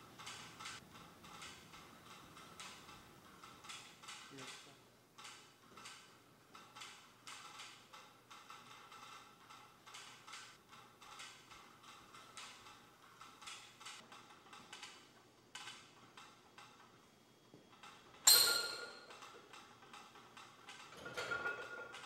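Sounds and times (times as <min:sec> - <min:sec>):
loud metallic clank with ring: 0:18.3 - 0:19.1.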